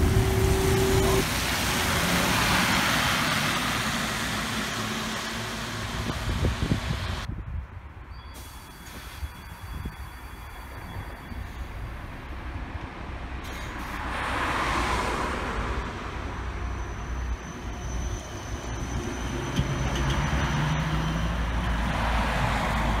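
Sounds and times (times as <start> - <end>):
electric bus driving off: 0.0 - 7.3, 15.5 - 23.0.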